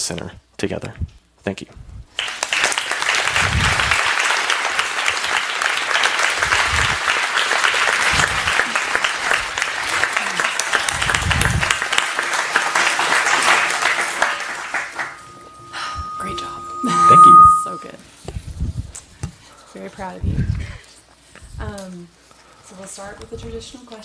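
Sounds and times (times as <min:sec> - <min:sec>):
audience applauding: 0:02.2 - 0:15.6.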